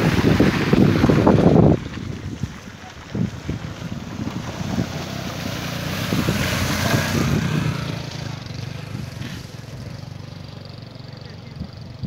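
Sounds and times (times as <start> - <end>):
rushing floodwater: 0.0 - 8.2
wind buffeting microphone: 0.0 - 9.7.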